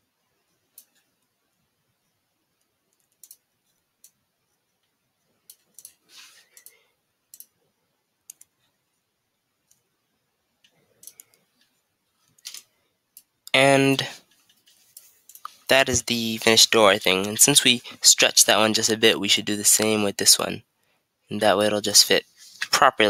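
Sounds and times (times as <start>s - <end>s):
computer mouse and keyboard clicks: 0.6s - 1.3s, 2.6s - 4.2s, 4.8s - 7.6s, 8.2s - 8.6s, 10.6s - 13.4s, 14.2s - 15.7s.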